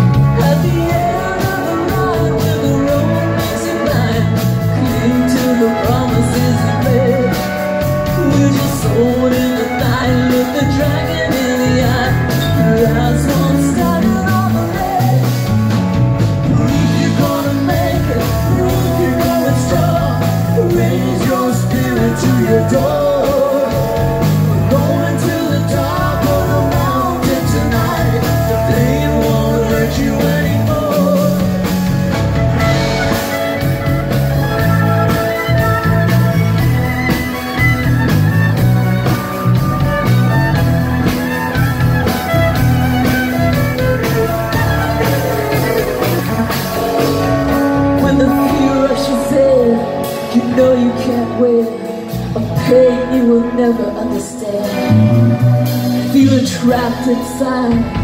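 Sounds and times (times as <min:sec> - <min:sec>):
drums: 0:00.0 - 0:58.0
woman singing: 0:00.3 - 0:07.5, 0:08.2 - 0:15.4, 0:48.0 - 0:54.9, 0:56.1 - 0:58.0.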